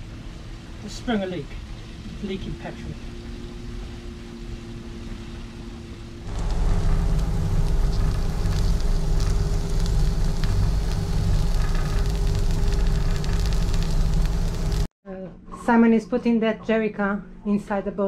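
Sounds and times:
steady low hum: 0:00.0 - 0:14.9
cabbage sizzling in a frying pan: 0:06.3 - 0:14.9.

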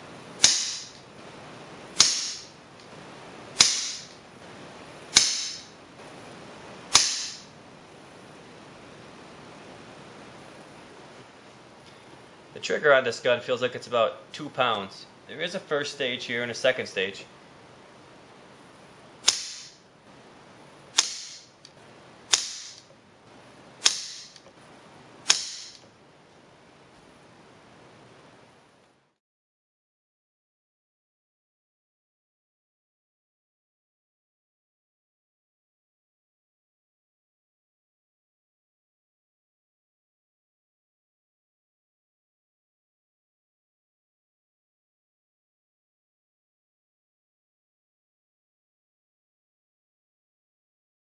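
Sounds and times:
air rifle shots: 0:00.4 - 0:01.0, 0:02.0 - 0:02.6, 0:03.6 - 0:04.1, 0:05.1 - 0:05.8, 0:06.9 - 0:07.6, 0:19.2 - 0:19.8, 0:20.9 - 0:21.5, 0:22.3 - 0:22.9, 0:23.8 - 0:24.4, 0:25.2 - 0:25.8.

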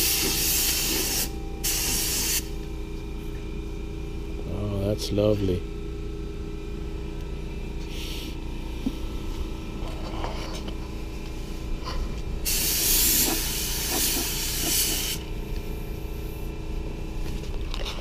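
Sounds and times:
spray gun hissing: 0:00.0 - 0:02.5, 0:12.4 - 0:15.2
spray gun puff: 0:00.0 - 0:02.5, 0:12.4 - 0:15.2.

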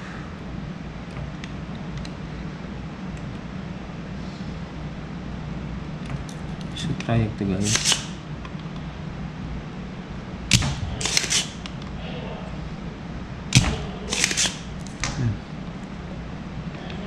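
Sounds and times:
desoldering pump snap: 0:07.6 - 0:08.2, 0:10.5 - 0:11.8, 0:13.5 - 0:15.2
short rasping burst: 0:13.6 - 0:14.7.

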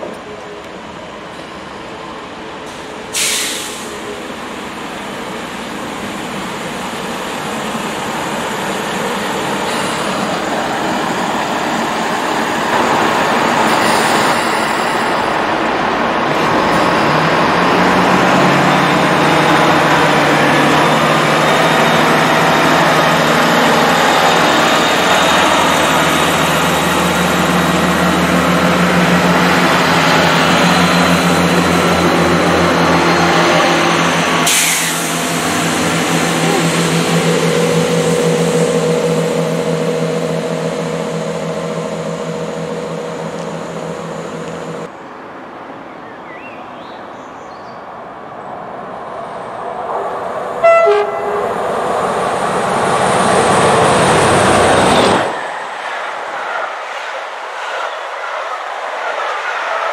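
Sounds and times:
wheel and rail rumble: 0:00.0 - 0:46.2, 0:47.2 - 0:59.9
diesel train engines droning: 0:00.0 - 0:46.8, 0:47.8 - 0:59.9.

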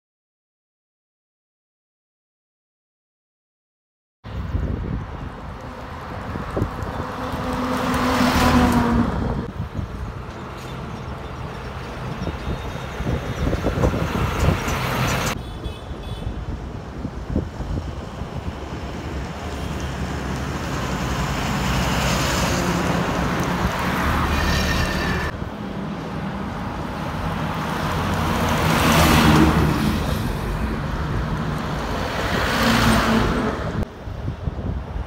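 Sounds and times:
lorries passing on highway: 0:04.3 - 0:35.0
car passing: 0:05.2 - 0:15.4, 0:18.0 - 0:33.9.

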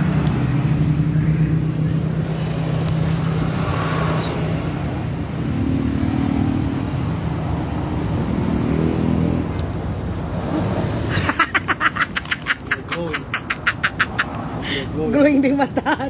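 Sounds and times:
engine running: 0:00.0 - 0:12.5.

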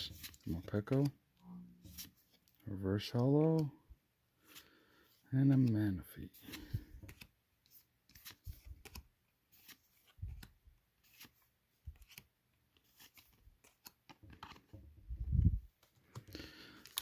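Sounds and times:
trading cards flicking and rustling: 0:05.4 - 0:14.8, 0:15.7 - 0:17.0.

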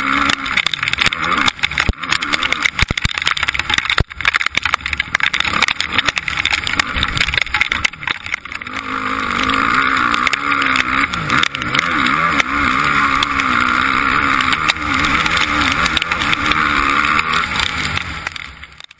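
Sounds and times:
motocross engine revving: 0:00.0 - 0:18.9
rapid ticking impacts on camera: 0:00.0 - 0:18.9.

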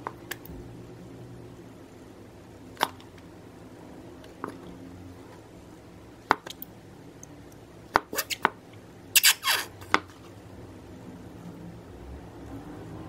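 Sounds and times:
glue bottle squirting and squelching: 0:08.1 - 0:08.4, 0:09.2 - 0:09.7.

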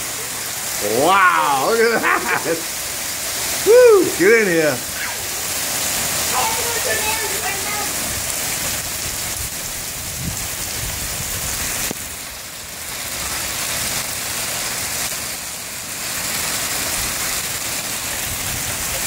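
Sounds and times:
hail and rain on pavement: 0:00.0 - 0:19.0.

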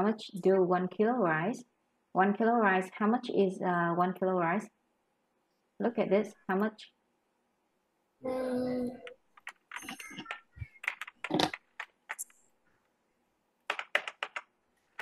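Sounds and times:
computer keyboard typing: 0:09.0 - 0:12.4, 0:13.7 - 0:15.0.

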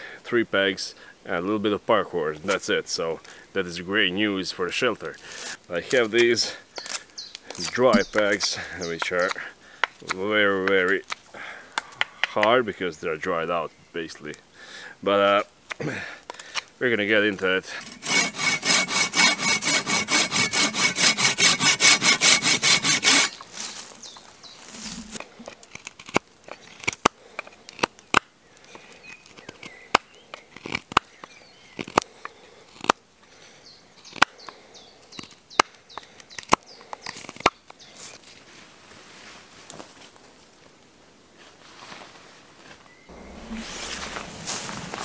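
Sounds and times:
blade sawing dry wood: 0:17.7 - 0:23.5, 0:43.1 - 0:45.0
sharp cuts and taps on wood: 0:34.1 - 0:34.3.

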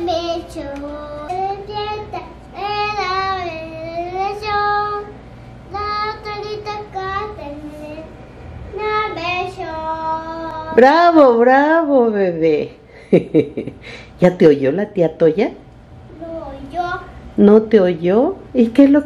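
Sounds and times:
young child singing: 0:00.0 - 0:10.8.

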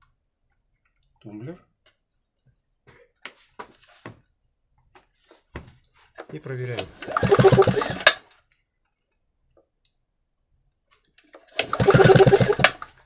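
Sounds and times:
recoil starter whirring: 0:06.8 - 0:08.2, 0:11.6 - 0:13.0.

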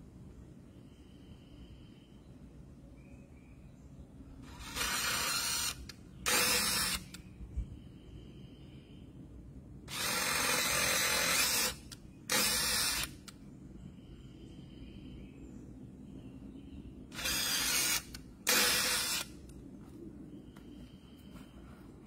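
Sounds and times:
cordless drill drilling into wood: 0:04.5 - 0:07.2, 0:09.9 - 0:13.2, 0:17.1 - 0:19.3.

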